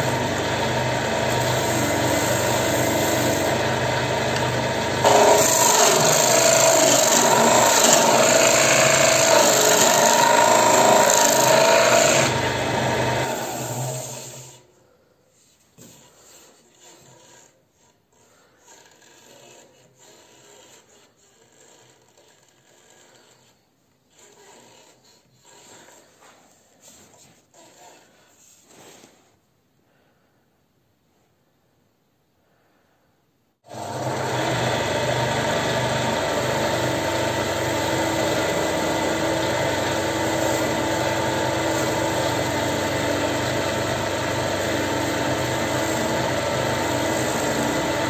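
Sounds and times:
wood lathe running: 0.0 - 14.6, 18.6 - 23.5, 33.7 - 48.0
lathe gouge scraping hiss: 1.2 - 3.6, 5.0 - 12.3, 39.8 - 43.6, 44.6 - 48.0.

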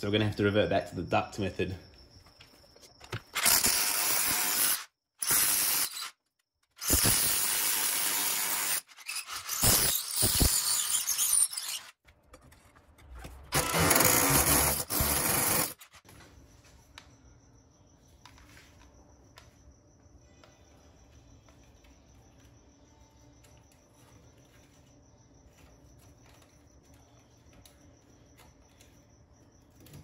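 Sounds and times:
power drill boring through wood: 3.3 - 6.1, 6.8 - 11.9, 13.5 - 15.9.

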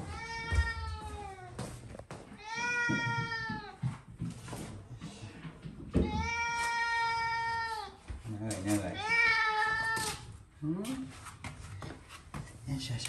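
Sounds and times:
cat meowing: 0.0 - 1.6, 2.4 - 3.8, 6.0 - 8.0, 8.8 - 10.3.

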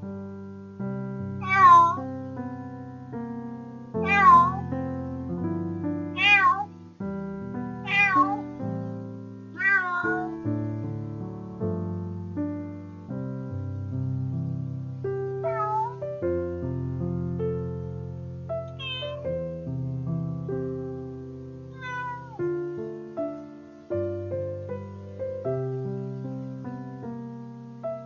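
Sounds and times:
piano music: 0.0 - 28.0
cat meowing: 1.4 - 2.0, 4.0 - 4.7, 6.1 - 6.7, 7.8 - 8.6, 9.6 - 10.4, 15.4 - 16.0, 18.7 - 19.4, 21.7 - 22.5.

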